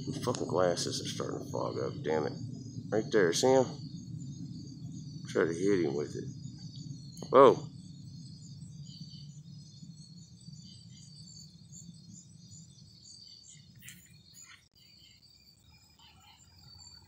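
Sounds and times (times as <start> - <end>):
low steady rumble: 0.0 - 13.6
night insects chirping: 0.0 - 17.0.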